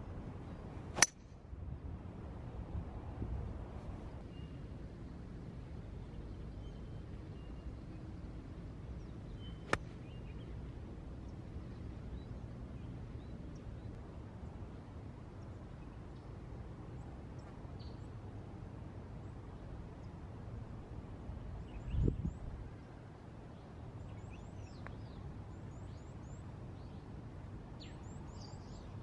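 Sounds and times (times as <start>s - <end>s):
low outdoor background: 0.0s - 29.0s
golf club striking ball: 0.9s - 1.2s.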